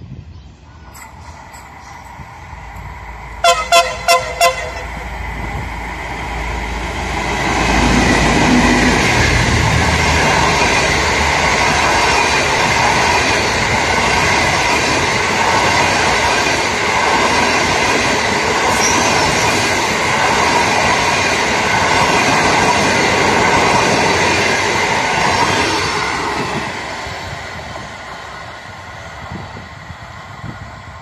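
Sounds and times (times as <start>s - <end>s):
train wheels rushing on rails: 0.0s - 31.0s.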